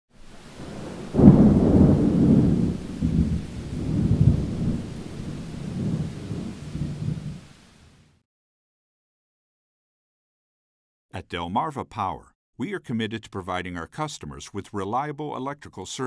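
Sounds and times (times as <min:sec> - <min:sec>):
rain falling: 0:00.1 - 0:08.2
thunder rolling: 0:00.2 - 0:07.6.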